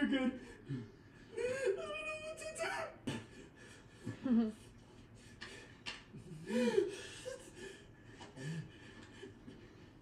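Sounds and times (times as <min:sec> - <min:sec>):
person breathing: 0:05.2 - 0:10.0.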